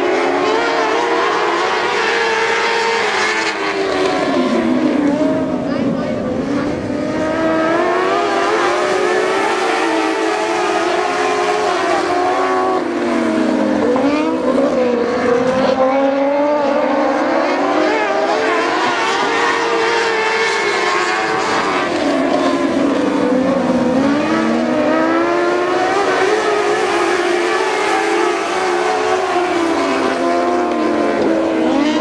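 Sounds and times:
race car engines accelerating: 0.0 - 32.0.

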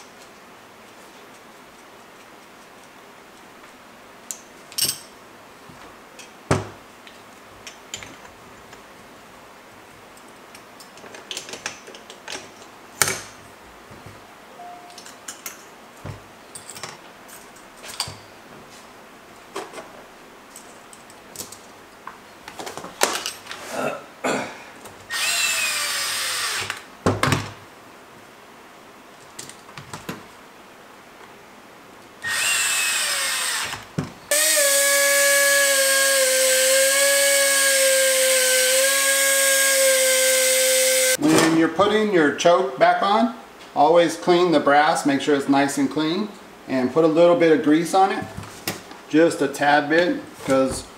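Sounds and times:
steady whine with hiss: 0.0 - 50.9
electric screwdriver driving screws: 25.1 - 26.8, 32.2 - 41.2.

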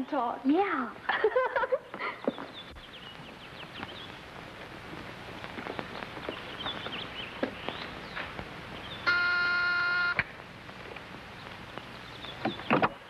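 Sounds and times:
steady hiss: 0.0 - 13.0
light footsteps: 1.2 - 8.7
high bird chirps: 5.7 - 10.1.

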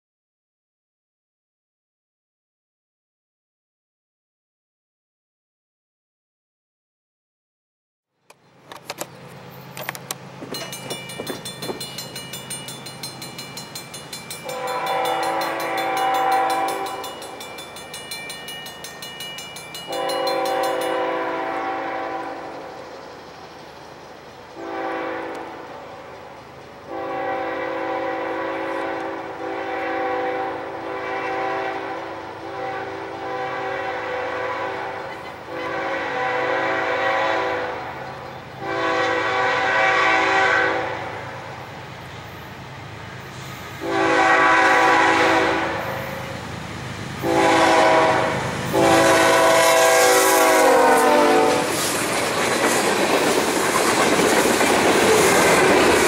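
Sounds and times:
fast high ringing bell: 10.5 - 21.2
locomotive air horn blasts: 14.4 - 17.1, 19.9 - 22.7, 24.6 - 25.8, 26.9 - 38.0, 38.6 - 41.2, 43.8 - 46.3, 47.2 - 51.8.

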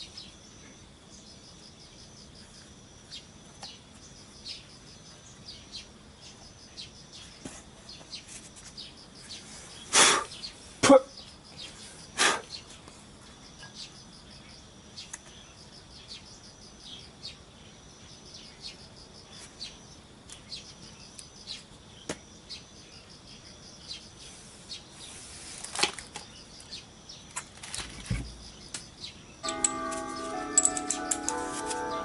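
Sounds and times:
faint high-pitched tone: 29.4 - 32.0.

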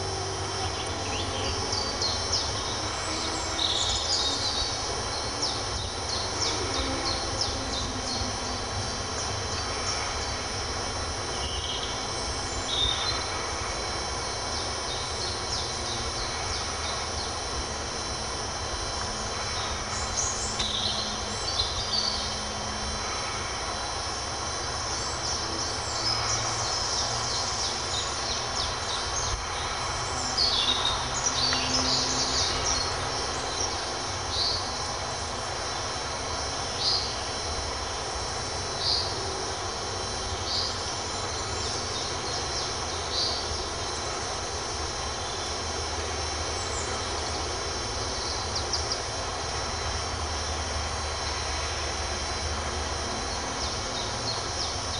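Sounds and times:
birds singing and calling: 0.0 - 54.9.

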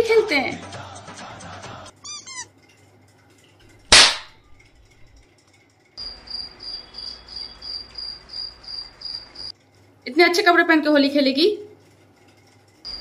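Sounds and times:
sharp loud crack: 3.9 - 4.4
cricket chirping: 6.0 - 9.5.

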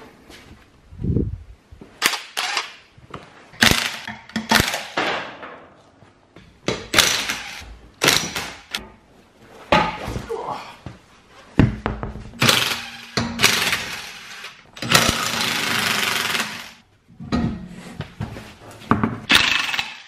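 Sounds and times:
impact wrench hammering: 12.4 - 16.7.

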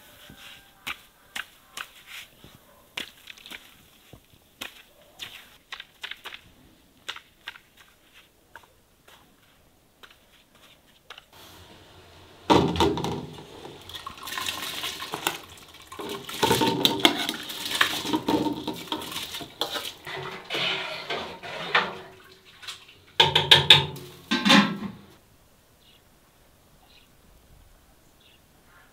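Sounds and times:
metal clattering: 12.5 - 25.1
metal skimmer scraping enamel: 12.5 - 25.1
wet rice and water sloshing: 13.3 - 23.2.

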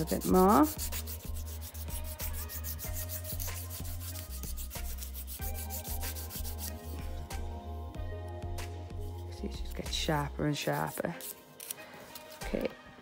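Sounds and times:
nail file rubbing: 0.0 - 7.3, 10.5 - 12.6.

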